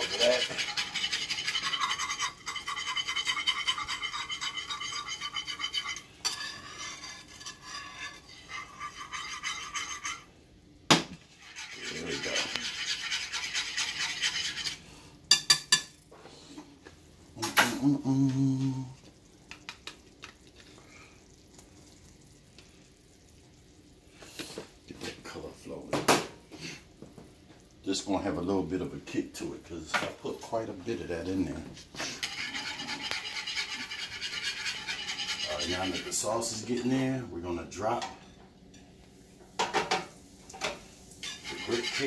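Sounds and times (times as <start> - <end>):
wire whisk scraping a skillet: 0.0 - 10.3, 11.2 - 15.8, 31.9 - 37.2, 39.6 - 42.0.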